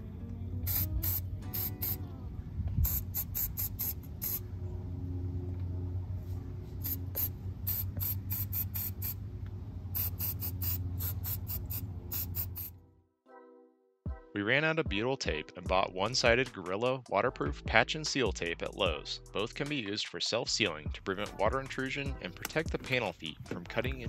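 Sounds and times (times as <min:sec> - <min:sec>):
background music: 0:00.0 - 0:02.6, 0:13.2 - 0:24.0
aerosol spray spritzes: 0:00.7 - 0:02.0, 0:02.8 - 0:04.4, 0:06.8 - 0:09.2, 0:10.0 - 0:12.7.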